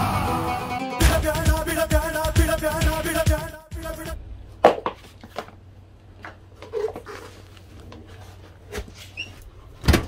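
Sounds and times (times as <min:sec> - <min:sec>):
shoes scuffing on tile floor: 0:06.6 - 0:09.5.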